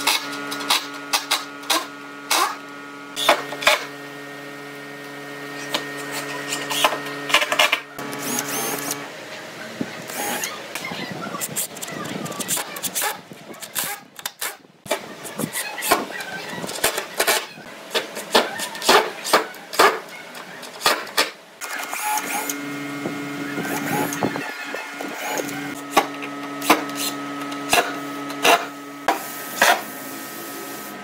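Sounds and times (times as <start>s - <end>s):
drill motor whine: 7.9s - 9.1s, 21.7s - 29.1s.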